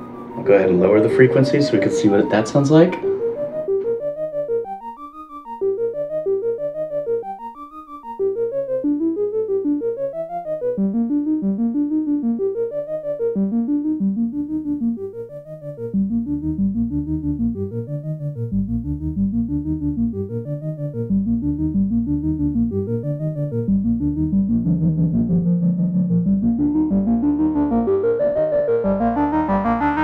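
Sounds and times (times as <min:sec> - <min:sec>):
synthesizer playing repeating loop: 0:00.0 - 0:30.0.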